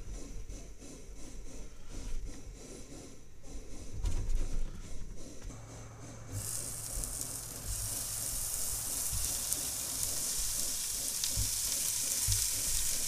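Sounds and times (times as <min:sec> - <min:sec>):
meat sizzling in a frying pan: 0:06.4 - 0:13.0.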